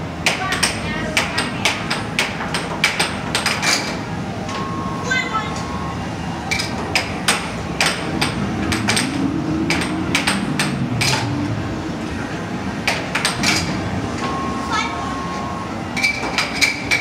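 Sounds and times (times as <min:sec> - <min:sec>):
air hockey puck clacks: 0:00.2 - 0:04.0, 0:06.5 - 0:11.3, 0:12.8 - 0:14.3.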